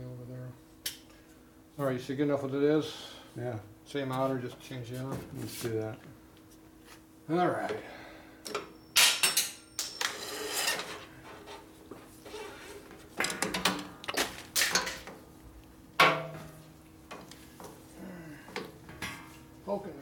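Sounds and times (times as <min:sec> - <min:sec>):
metal scraping: 0:10.1 - 0:11.6.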